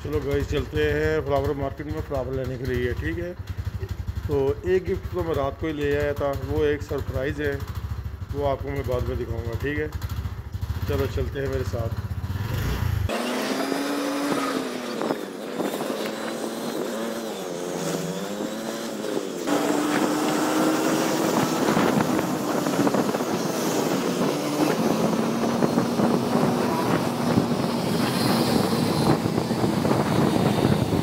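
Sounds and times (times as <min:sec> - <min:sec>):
vehicle engine: 0:00.0 - 0:31.0
wind and road noise: 0:09.9 - 0:31.0.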